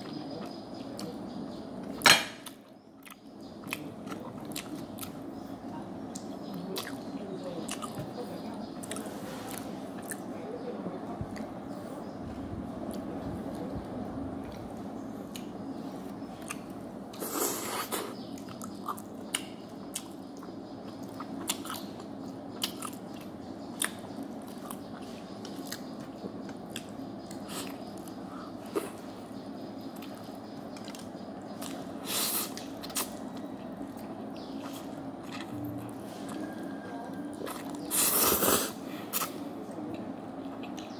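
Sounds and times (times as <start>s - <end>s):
steady low hum: 0.0s - 40.9s
person chewing food: 1.8s - 5.2s, 7.6s - 8.0s, 16.4s - 29.0s, 29.8s - 36.7s, 37.3s - 40.9s.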